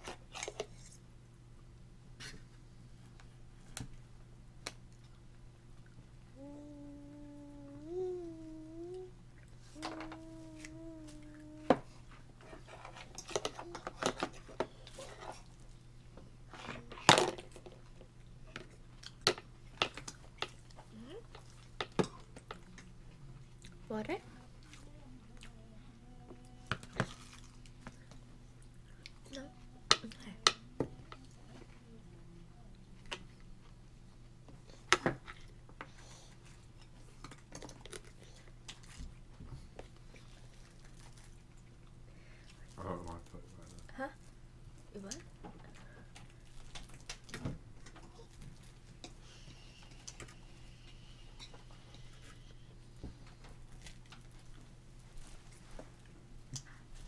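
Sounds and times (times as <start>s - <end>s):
child humming: 6.3s - 12.0s, 24.4s - 27.0s.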